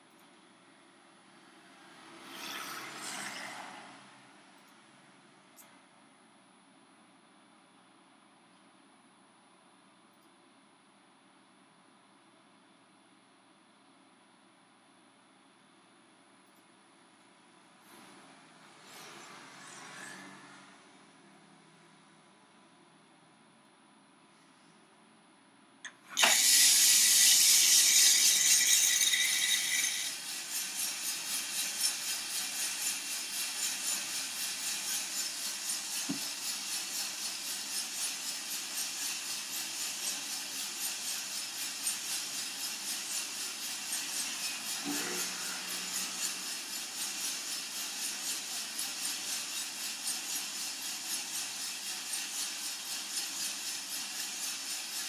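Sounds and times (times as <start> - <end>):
beans rattling in turning drum: 26.1 - 55.0
beans poured with rushing hiss: 26.2 - 37.5.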